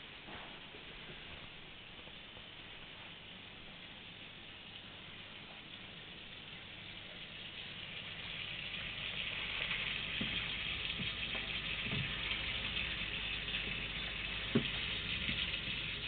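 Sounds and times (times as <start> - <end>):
water running and splashing: 4.6 - 16.0.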